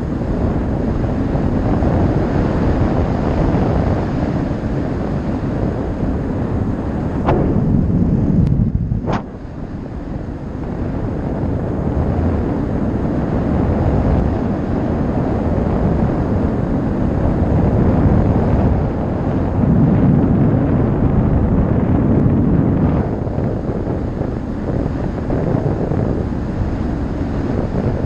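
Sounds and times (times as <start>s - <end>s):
wind rush across microphone: 0.0s - 28.0s.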